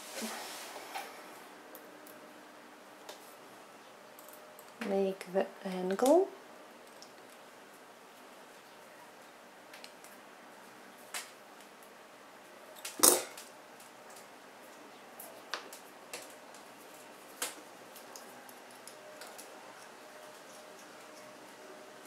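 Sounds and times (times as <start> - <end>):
pliers and wire clicking: 4.2 - 4.9.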